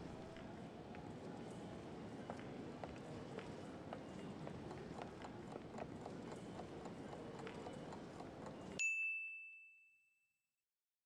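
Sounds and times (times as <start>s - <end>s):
bright bell ding: 8.8s - 10.3s.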